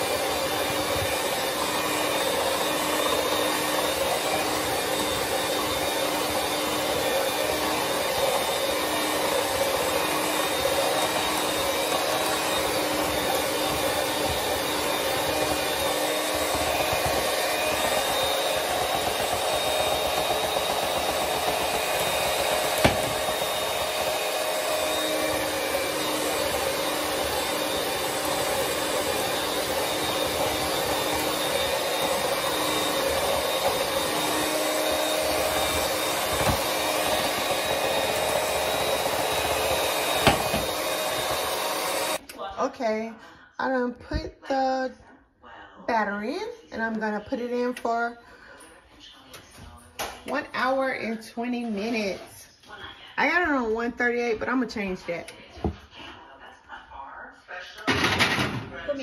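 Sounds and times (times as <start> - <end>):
electric hand mixer whirring: 0.0 - 42.2, 50.2 - 52.4, 53.2 - 55.8.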